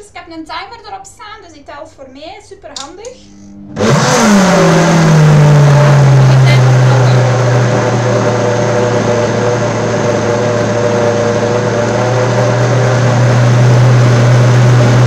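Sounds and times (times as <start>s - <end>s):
blender motor running: 3.4s - 15.0s.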